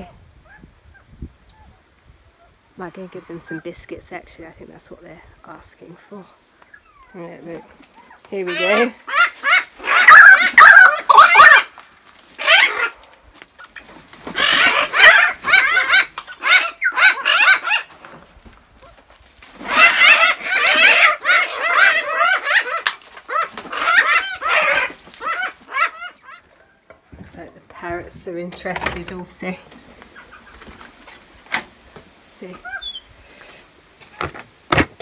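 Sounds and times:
birds calling loudly: 0:06.4 - 0:17.9, 0:19.6 - 0:27.1, 0:32.4 - 0:33.2.

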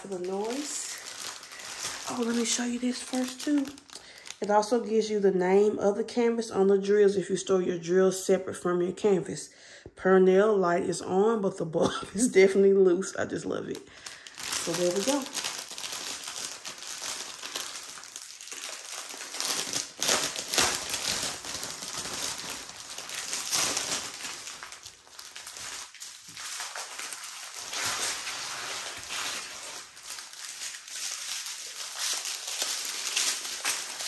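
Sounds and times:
plastic packaging crinkling: 0:00.0 - 0:04.9, 0:13.5 - 0:34.0.

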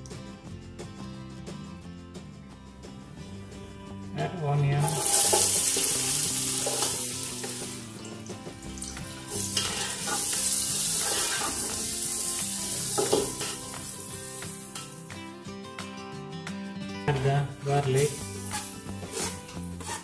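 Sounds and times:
onions sizzling in hot oil: 0:04.8 - 0:15.0, 0:18.0 - 0:20.0.

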